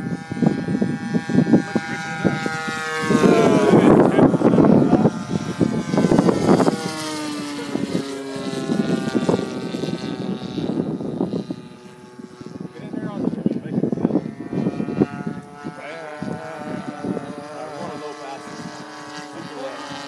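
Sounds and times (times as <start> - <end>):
model plane engine in flight: 0.0 - 20.0
wind rumbling on microphone: 0.0 - 20.0.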